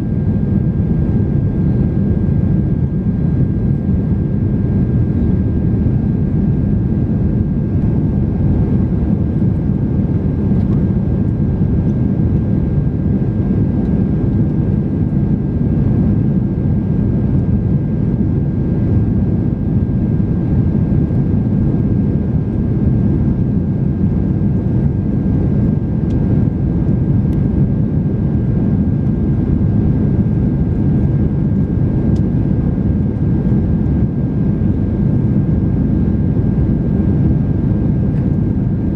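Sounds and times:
airplane cabin engine roar: 0:00.0 - 0:38.9.

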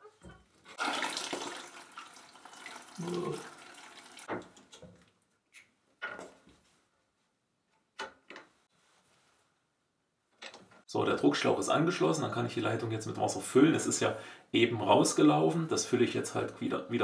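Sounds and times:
water splashing from pipe: 0:00.7 - 0:04.4.

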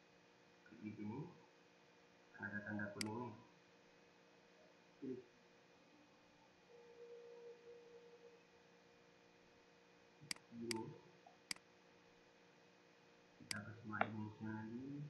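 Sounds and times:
faint steady tone: 0:00.0 - 0:15.0
computer mouse clicks: 0:03.0 - 0:03.2, 0:10.2 - 0:11.6, 0:13.5 - 0:14.2.

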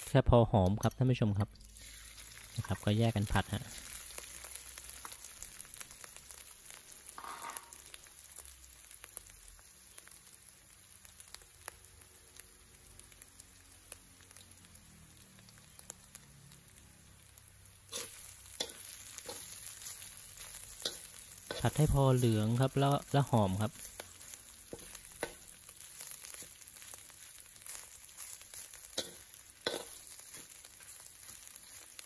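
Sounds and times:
frying sizzle: 0:00.0 - 0:32.0
metal spatula scraping wok: 0:07.1 - 0:07.9, 0:17.9 - 0:23.0, 0:23.7 - 0:26.6, 0:27.8 - 0:32.0.

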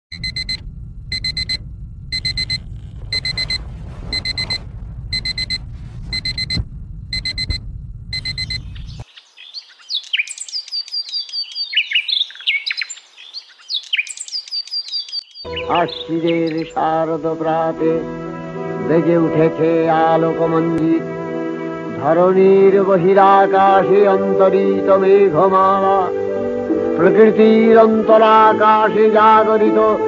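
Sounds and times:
alarm clock beeping: 0:00.1 - 0:04.6, 0:05.2 - 0:08.7
low steady rumble: 0:00.1 - 0:09.0
birds chirping: 0:08.2 - 0:17.0.

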